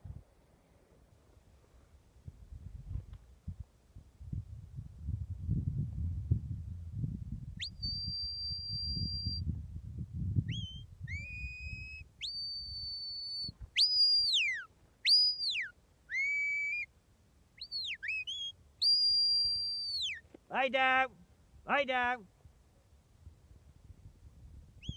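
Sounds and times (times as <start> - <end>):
sharp high whistle commands: 7.6 - 9.4, 10.5 - 16.9, 17.6 - 20.2.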